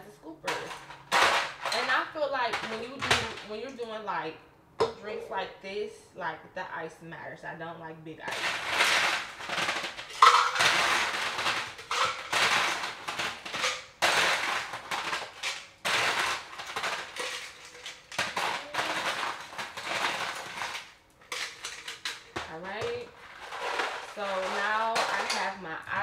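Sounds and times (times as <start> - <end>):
ice cubes rattling and clinking: 0.4 - 3.5, 8.3 - 25.6.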